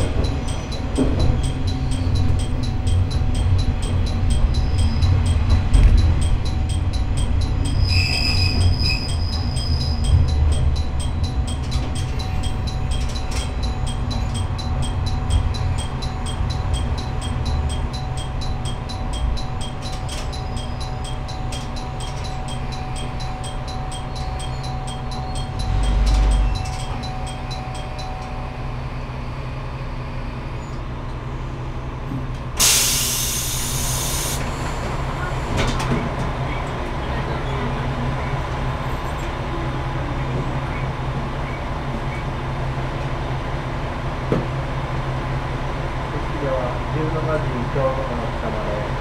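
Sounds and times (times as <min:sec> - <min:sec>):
faint rail ticking: 0:00.0 - 0:28.4
railcar rumbling on rails: 0:00.0 - 0:49.0
air brake hiss: 0:32.6 - 0:34.6.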